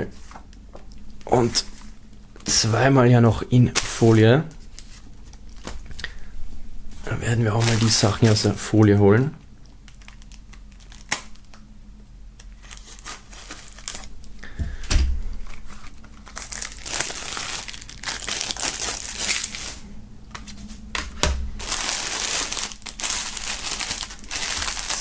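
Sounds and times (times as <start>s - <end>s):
plastic film crinkling and tearing: 7.3s - 8.6s, 9.8s - 11.6s, 12.4s - 14.1s, 15.5s - 19.8s, 21.6s - 25.0s.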